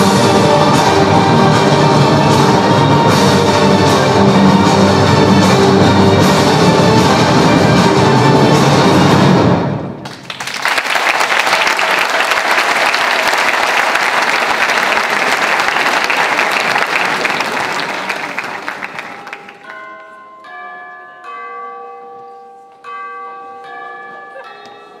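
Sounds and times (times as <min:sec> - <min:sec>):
audience applause: 0:10.0 - 0:19.8.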